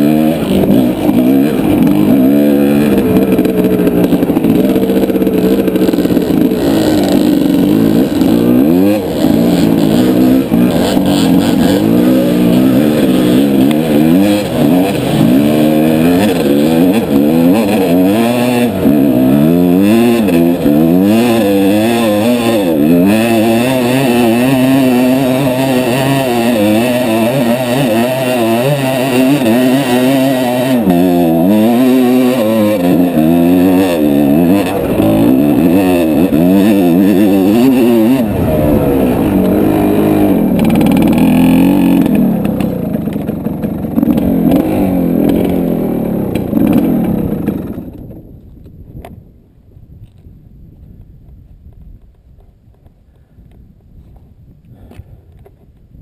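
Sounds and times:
rough low rumble: 0.0 - 27.0, 32.8 - 49.0
dirt bike engine revving: 0.0 - 48.1.

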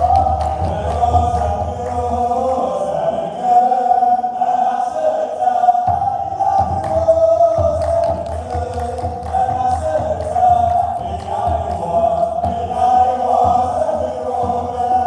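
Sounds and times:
large drums beating: 0.0 - 2.6, 5.9 - 15.0
men chanting a hymn: 0.0 - 15.0.

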